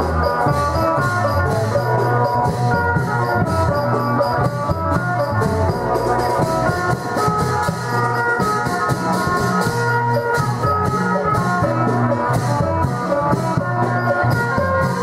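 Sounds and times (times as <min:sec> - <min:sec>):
repeating bass line: 0:00.0 - 0:09.8
steady drum beat: 0:00.0 - 0:15.0.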